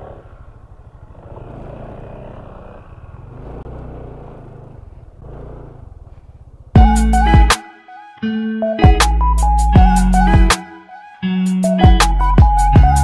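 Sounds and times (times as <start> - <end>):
motor scooter engine running: 0.0 - 6.9.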